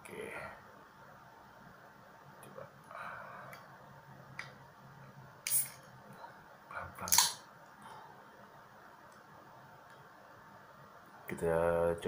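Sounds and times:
can hissing open: 0:05.4 - 0:05.8, 0:07.1 - 0:07.4.

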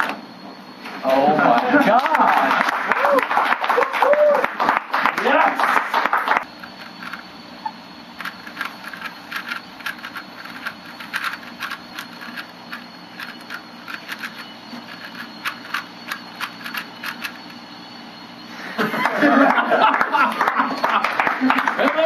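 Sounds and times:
puzzle cube layers clicking: 0:06.7 - 0:07.2, 0:08.2 - 0:17.6.

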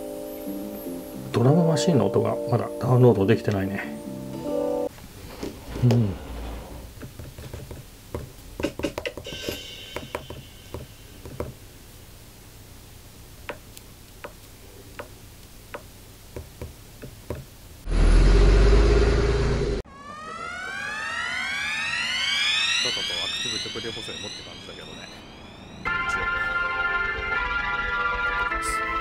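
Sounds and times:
falling electronic drum tone: 0:08.6 - 0:11.6, 0:19.8 - 0:28.3
cartoon car sound effect: 0:19.9 - 0:25.0.

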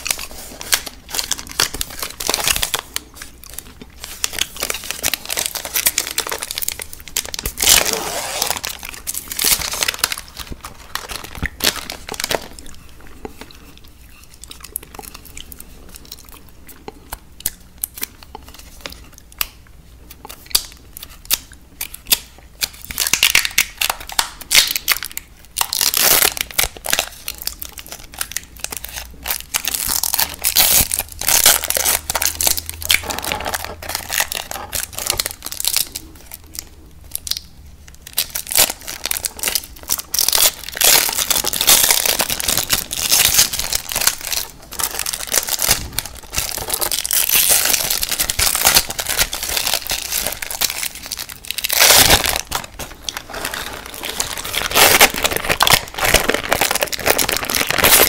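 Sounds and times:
plastic wrappers crinkling: 0:00.0 - 0:58.0
chewing candy: 0:10.2 - 0:19.3.

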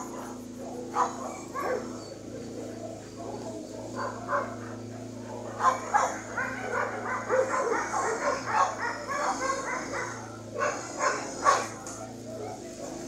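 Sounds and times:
dog yipping and whining: 0:00.9 - 0:02.3, 0:05.6 - 0:13.0.

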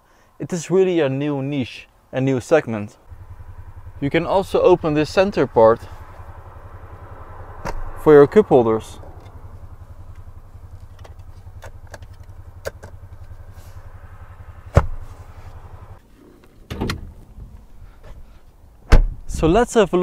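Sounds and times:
low cabin hum: 0:03.1 - 0:16.0
car door slam: 0:14.7 - 0:15.0, 0:18.9 - 0:19.2.

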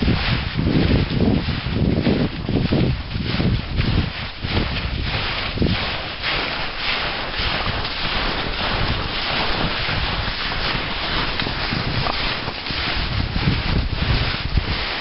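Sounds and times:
wind blowing across microphone: 0:00.0 - 0:15.0.

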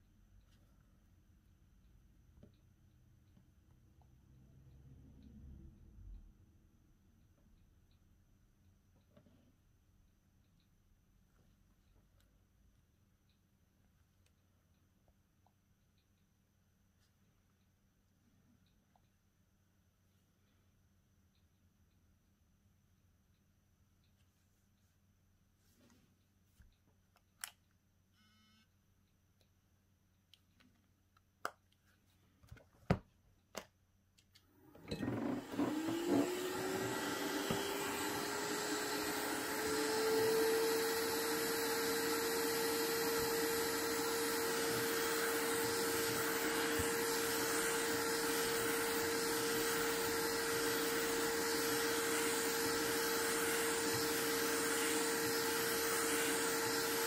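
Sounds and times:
blower motor whine: 0:34.7 - 0:57.0.

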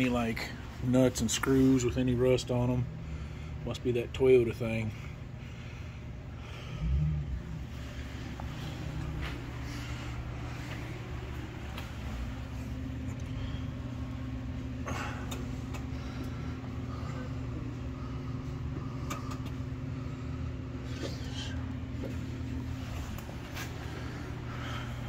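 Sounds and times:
low machine hum: 0:00.0 - 0:25.0.

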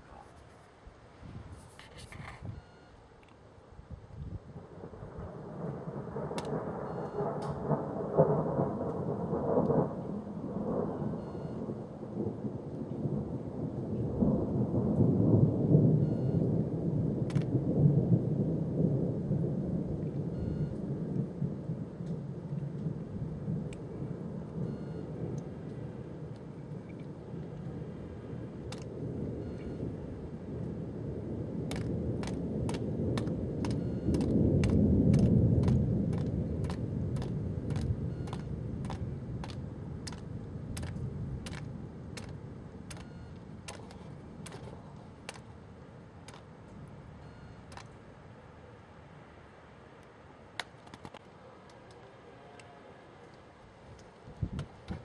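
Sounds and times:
thunder rumbling: 0:00.0 - 0:03.0, 0:03.8 - 0:48.8, 0:50.5 - 0:55.0
even ticking: 0:31.7 - 0:44.7.

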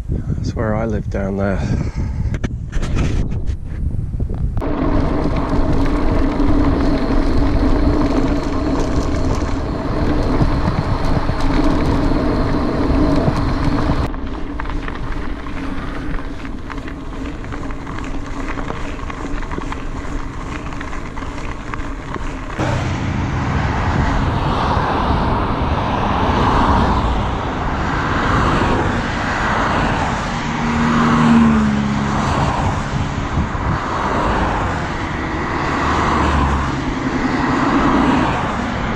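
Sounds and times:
wind on camera: 0:00.0 - 0:38.9
bike tyres rolling over gravel: 0:04.4 - 0:38.9
road traffic: 0:04.4 - 0:38.9
car passing: 0:04.6 - 0:38.9
steady hum: 0:22.6 - 0:26.2.

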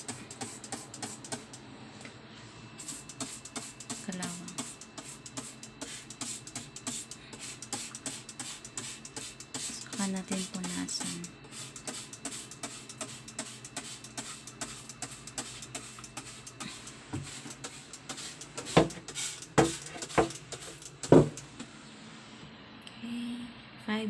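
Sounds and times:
spray bottle squirting: 0:00.0 - 0:01.6, 0:02.8 - 0:21.5
knocks against cabinet: 0:21.1 - 0:21.4.

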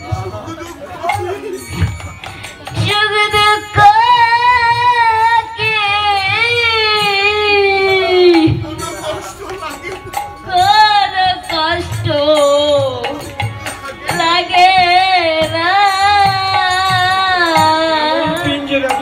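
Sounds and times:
drum beats: 0:00.0 - 0:19.0
woman singing: 0:02.7 - 0:08.7, 0:10.5 - 0:13.2, 0:14.0 - 0:19.0.

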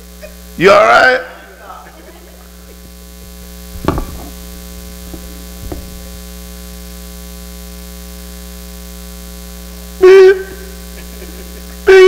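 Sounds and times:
electrical mains hum: 0:00.0 - 0:12.0
sharp knocks: 0:03.3 - 0:06.3.

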